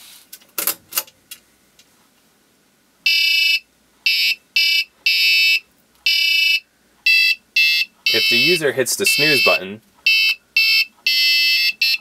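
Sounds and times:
buzzer playing electronic melody: 3.1 - 12.0.

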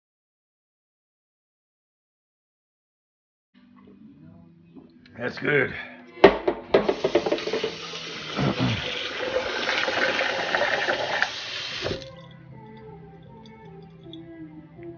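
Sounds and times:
tap water running into plastic jar: 6.2 - 14.2.

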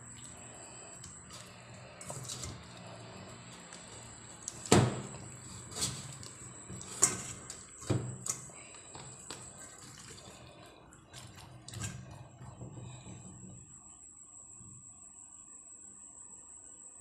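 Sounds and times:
wet handling of meat: 0.0 - 13.3.

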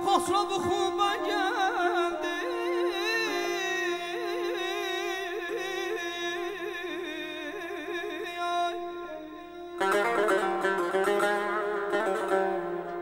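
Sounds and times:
man singing ornamented vowel line: 0.0 - 10.3.

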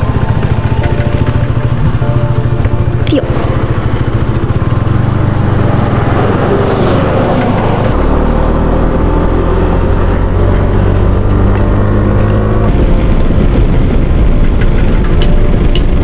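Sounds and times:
motorcycle engine running: 0.0 - 16.0
wind rush on microphone: 12.2 - 16.0.

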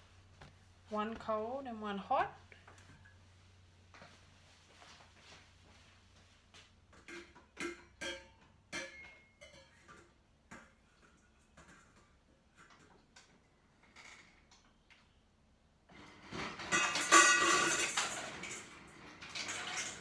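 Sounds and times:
kitchen bowls clinking: 7.0 - 12.2, 16.0 - 20.0.

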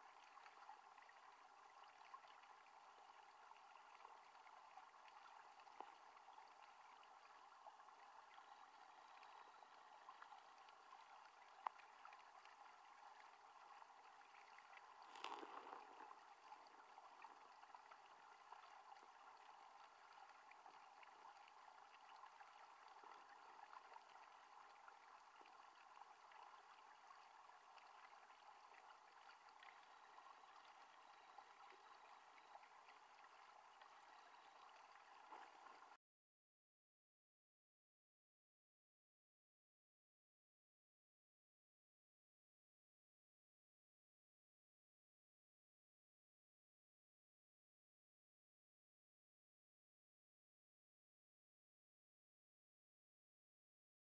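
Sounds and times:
underwater stream rush: 7.8 - 36.0
fine crackling ticks: 15.0 - 16.2.

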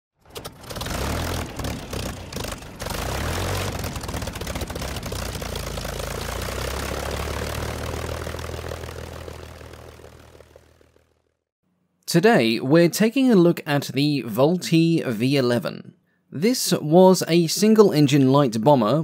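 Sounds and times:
propeller aircraft engine running: 0.1 - 11.5.

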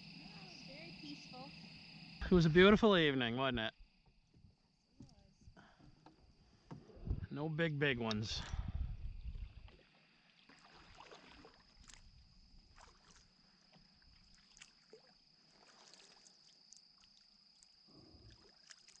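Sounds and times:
kayak paddle strokes: 9.6 - 16.6.

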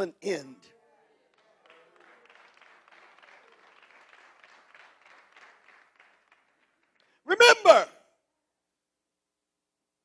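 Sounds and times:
crowd applause: 1.0 - 7.8.

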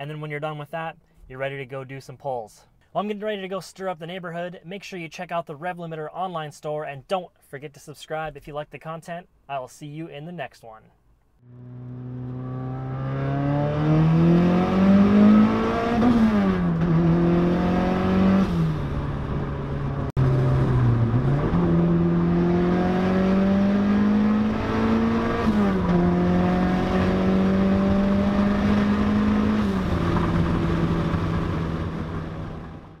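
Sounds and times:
car engine accelerating: 11.4 - 33.0.

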